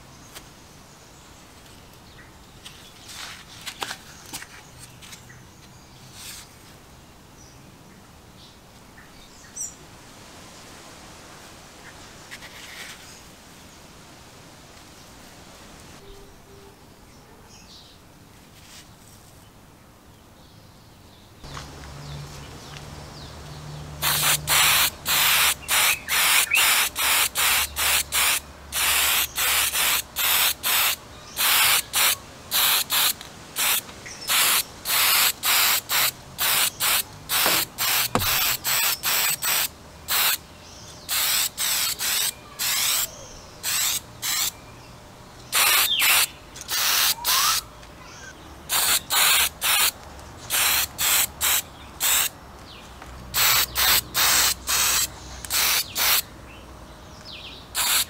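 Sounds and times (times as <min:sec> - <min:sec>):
spray can hissing: 0:24.0 - 0:40.4, 0:41.1 - 0:44.5, 0:45.6 - 0:47.6, 0:48.7 - 0:52.3, 0:53.4 - 0:56.2, 0:57.8 - 0:58.0.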